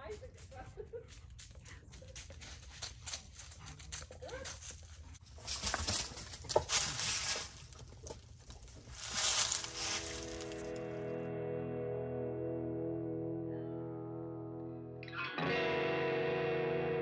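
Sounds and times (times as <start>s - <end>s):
rustling in dry leaves: 4.4s - 10.9s
scuffing noise: 8.6s - 10.8s
music: 10.0s - 17.0s.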